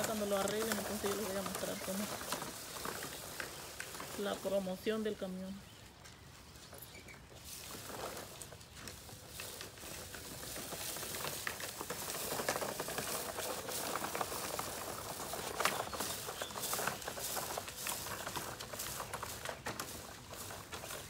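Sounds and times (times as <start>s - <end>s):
spreader gears clicking and crackling: 0.0s - 5.3s, 5.9s - 21.0s.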